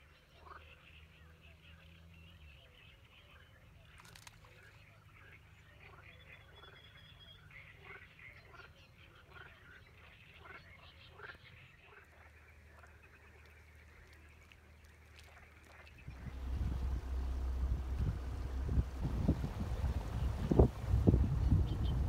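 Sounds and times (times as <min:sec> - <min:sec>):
low steady hum: 0:12.5 - 0:22.0
wind rumble on microphone: 0:16.0 - 0:22.0.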